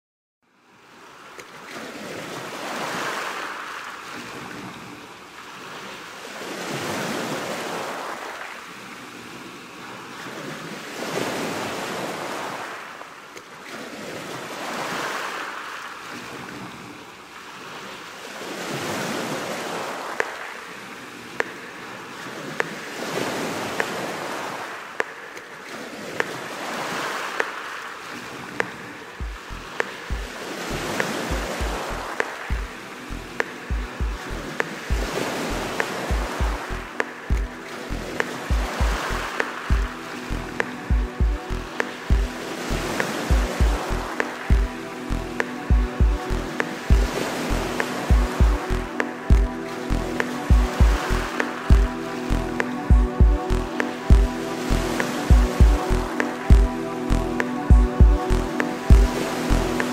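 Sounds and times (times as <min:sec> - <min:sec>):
surf breaking on sandy shore: 0:01.1 - 0:56.6.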